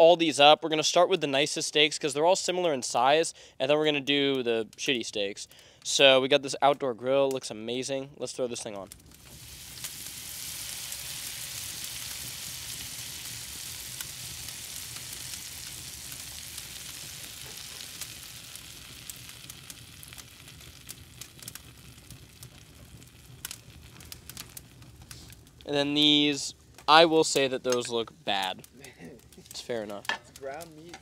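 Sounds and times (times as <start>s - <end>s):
wood fire pops and crackles: 8.2s - 31.0s
steak sizzling on a grill: 9.0s - 31.0s.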